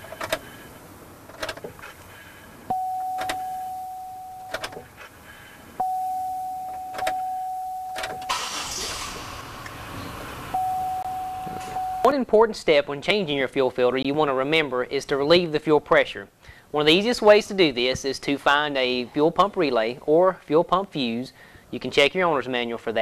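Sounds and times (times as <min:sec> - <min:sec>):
ignition key clicks: 0:00.0 - 0:00.4, 0:01.2 - 0:01.9, 0:02.7 - 0:05.0, 0:06.6 - 0:08.7
fuel pump whine: 0:01.8 - 0:12.0.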